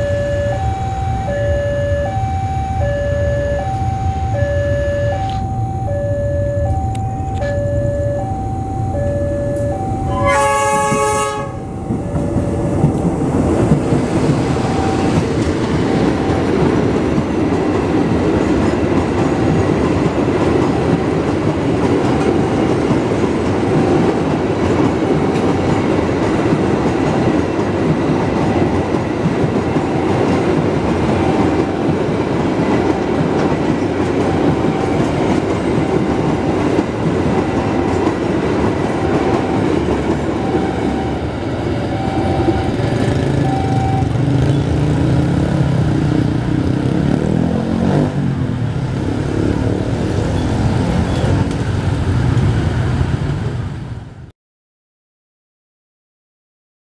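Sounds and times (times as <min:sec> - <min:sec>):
faint electronic warning tone: 0:00.0 - 0:13.1, 0:14.5 - 0:15.2, 0:40.3 - 0:44.6
train wheels rumbling on rails: 0:06.6 - 0:54.1
locomotive horn blast: 0:09.5 - 0:12.0, 0:40.4 - 0:44.2.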